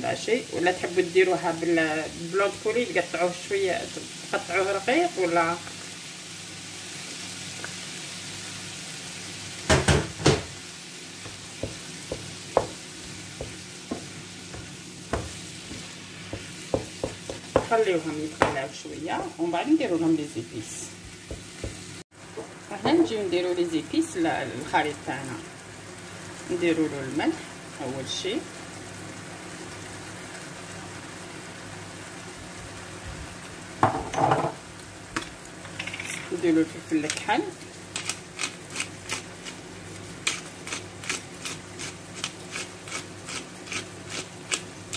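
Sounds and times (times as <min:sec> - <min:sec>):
meat and vegetables sizzling in a pan: 0:00.0 - 0:44.9
wooden spatula knocking against pan: 0:11.3 - 0:17.8, 0:18.4 - 0:18.6, 0:21.0 - 0:23.1.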